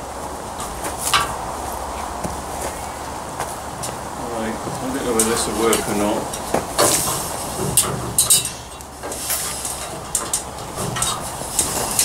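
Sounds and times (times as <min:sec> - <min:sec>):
boots and hands on metal rungs: 0:00.0 - 0:12.0
metal ladder clinking and knocking: 0:05.0 - 0:12.0.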